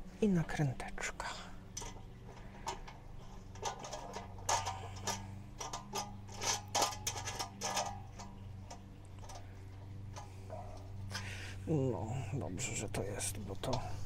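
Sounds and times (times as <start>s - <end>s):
low steady hum: 0.0s - 14.0s
small metal parts clicking: 1.6s - 11.6s.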